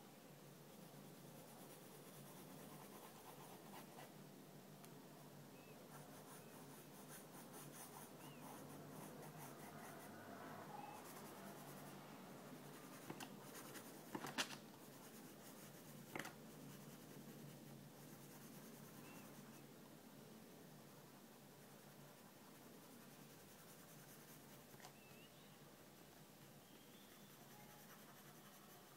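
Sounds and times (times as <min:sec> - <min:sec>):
pencil scratching on paper: 0:00.7 - 0:04.1, 0:05.9 - 0:12.0, 0:12.6 - 0:19.6, 0:27.1 - 0:28.9.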